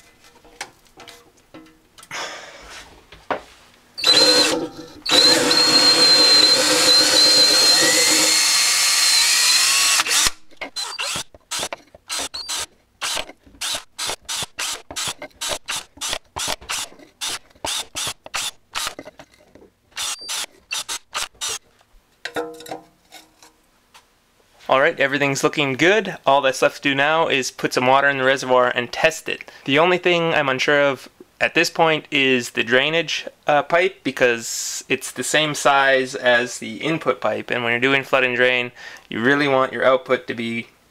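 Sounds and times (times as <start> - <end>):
cordless drill whining: 4.0 - 19.0, 20.0 - 21.6.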